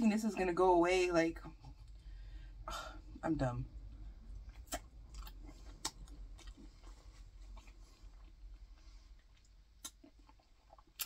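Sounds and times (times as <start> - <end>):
person chewing food: 3.8 - 11.0.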